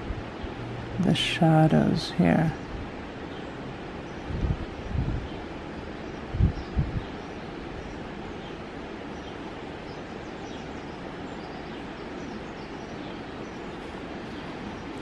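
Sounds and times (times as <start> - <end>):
outdoor background hiss: 0.0 - 15.0
low rumbles on microphone: 4.2 - 5.4, 6.2 - 8.1.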